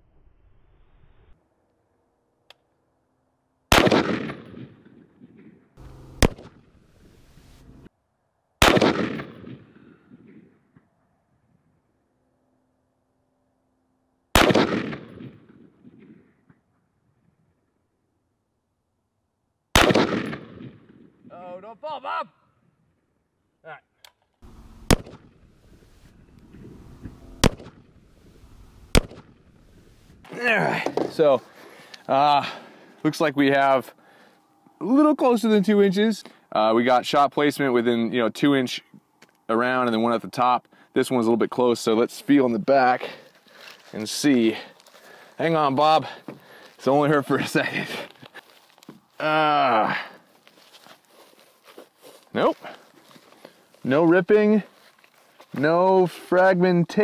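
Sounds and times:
rifle shots echoing: 3.7s - 7.4s, 8.6s - 10.4s, 14.3s - 16.3s, 19.7s - 21.2s, 24.5s - 25.6s, 27.0s - 28.0s, 28.8s - 29.6s.

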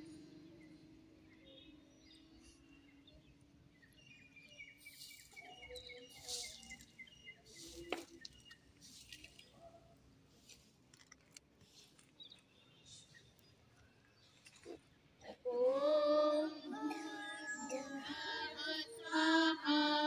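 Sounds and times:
birds chirping: 0.0s - 20.0s
faint rustles: 4.8s - 15.0s.

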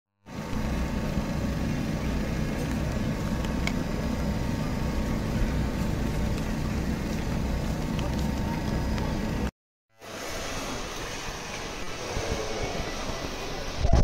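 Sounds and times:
low outdoor rumble: 0.2s - 9.5s.

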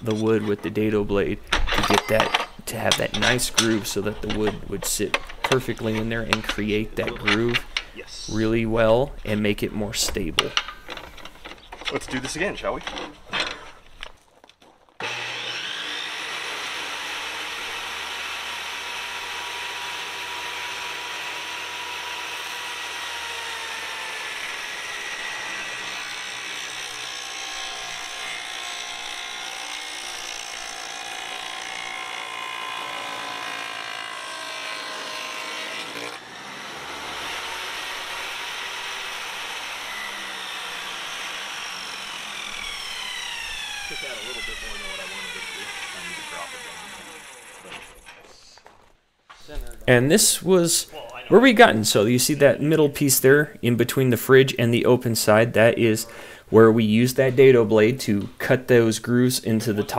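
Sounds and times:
table saw cutting wood: 1.8s - 8.5s, 15.0s - 48.1s.

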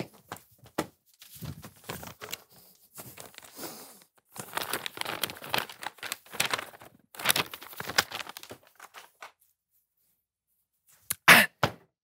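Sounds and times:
paper being crumpled: 1.1s - 9.5s.

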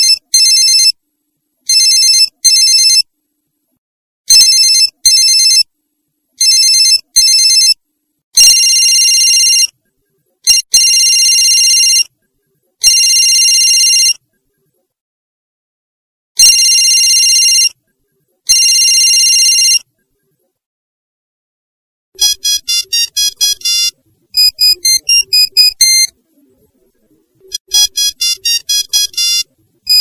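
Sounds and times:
phone ringtone beeps: 0.0s - 1.0s, 1.7s - 3.1s, 4.3s - 5.7s, 6.4s - 7.8s, 8.4s - 9.8s, 10.4s - 12.1s, 12.8s - 14.2s, 16.4s - 17.8s, 18.5s - 19.9s, 22.2s - 26.2s, 27.5s - 30.0s.

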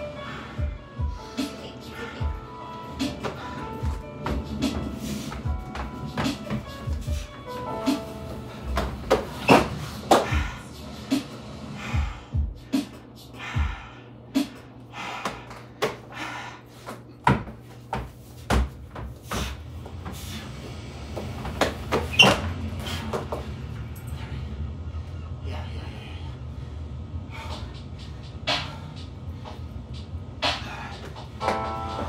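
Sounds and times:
hands and feet thudding on plywood: 3.1s - 7.3s, 17.2s - 20.2s.

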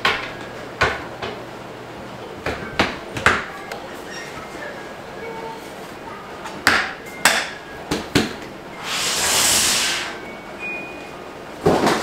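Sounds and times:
rushing noise: 8.8s - 10.3s.

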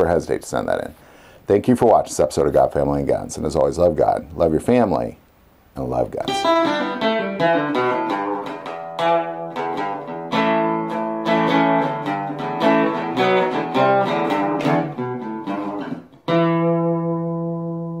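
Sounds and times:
acoustic guitar picking: 6.3s - 18.0s.

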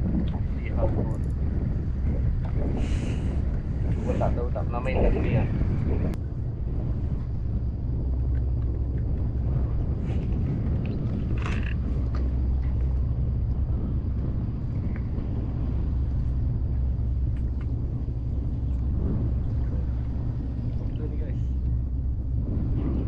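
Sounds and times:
wind rumbling on microphone: 0.0s - 23.0s
faint clicks and knocks: 17.2s - 17.8s.

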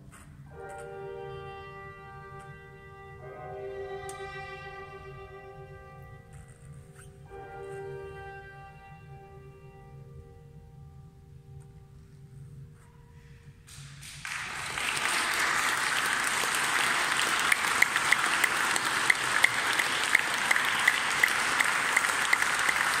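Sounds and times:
viola and piano note: 0.5s - 10.6s
sharp nearby claps: 13.7s - 23.0s
audience applauding: 13.9s - 23.0s.

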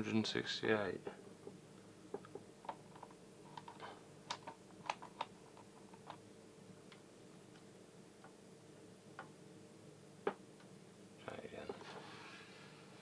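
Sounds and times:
light clicks and taps of test probes: 1.4s - 5.3s, 6.9s - 8.4s.

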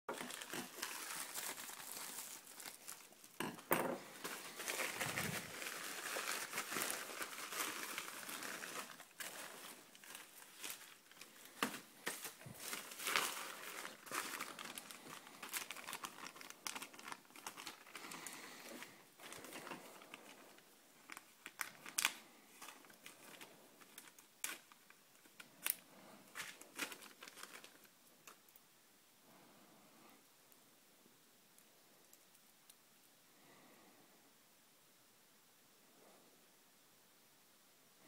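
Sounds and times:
plastic packaging crinkling: 0.1s - 28.6s.

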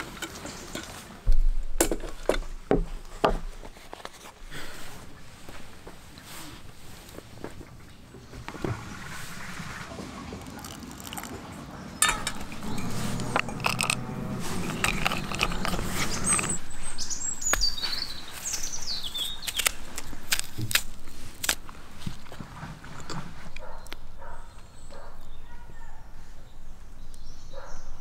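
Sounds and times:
hot water pouring into metal mug: 9.0s - 11.4s
bird chirping: 11.6s - 19.7s
spoon clinking in metal mug: 12.0s - 16.6s.

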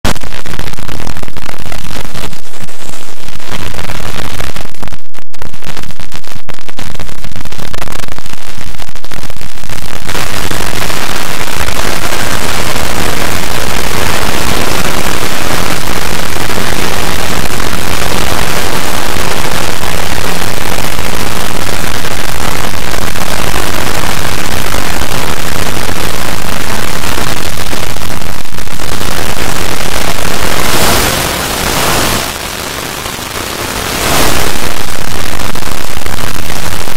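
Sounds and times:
distorted static-like noise: 0.0s - 36.9s.

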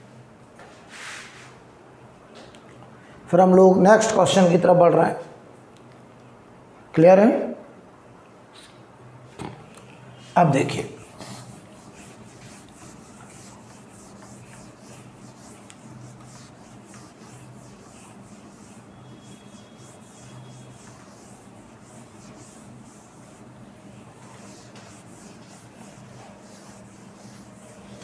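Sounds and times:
eraser rubbing on whiteboard: 10.5s - 28.0s.

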